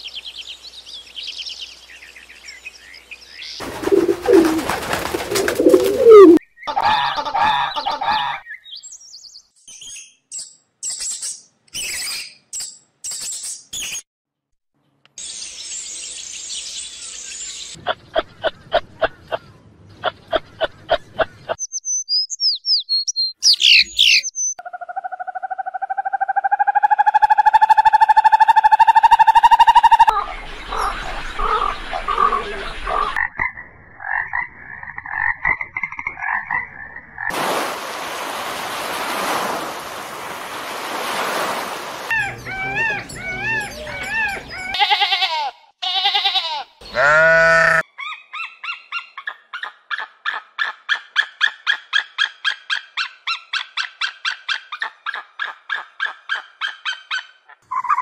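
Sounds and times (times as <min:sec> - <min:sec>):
long rising animal call: 0:03.9 - 0:04.7, 0:05.4 - 0:06.4
high bird chirps and whistles: 0:08.5 - 0:14.0, 0:21.6 - 0:24.6.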